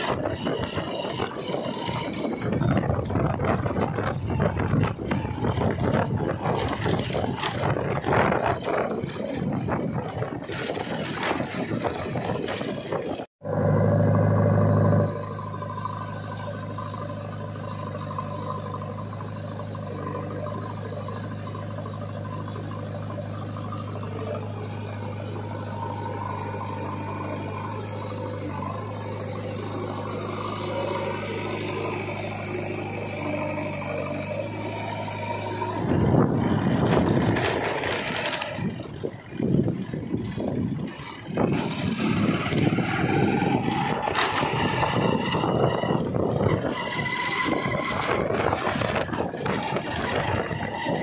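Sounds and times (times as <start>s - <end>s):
diesel engine running under load: 0.0s - 51.0s
road travel noise: 0.0s - 51.0s.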